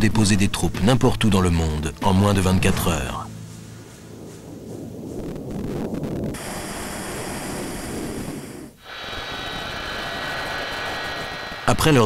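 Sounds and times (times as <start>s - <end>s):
aircraft in flight rushing air: 4.0s - 12.0s
jet engines whining on ground: 6.3s - 12.0s.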